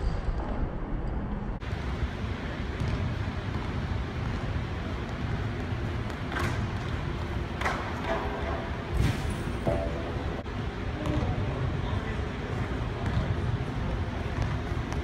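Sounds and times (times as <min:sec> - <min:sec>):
low room rumble: 0:00.0 - 0:15.0.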